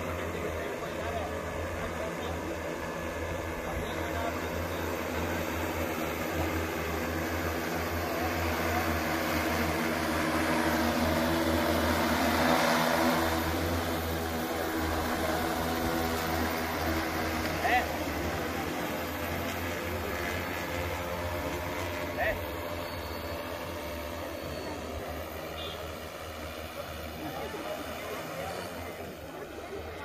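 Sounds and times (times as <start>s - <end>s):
drone propellers droning: 0.0s - 30.0s.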